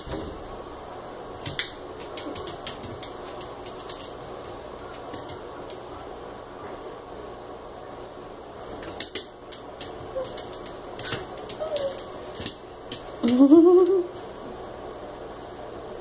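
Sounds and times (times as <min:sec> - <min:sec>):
puppy squeaks: 0:10.1 - 0:12.1.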